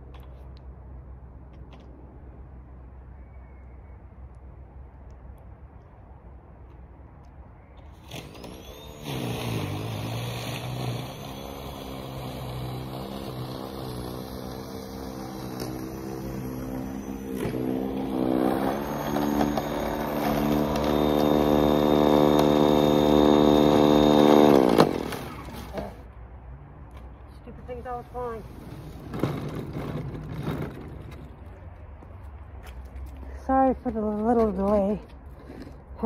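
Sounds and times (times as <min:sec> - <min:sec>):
snowblower motor whining: 0:08.0 - 0:26.0.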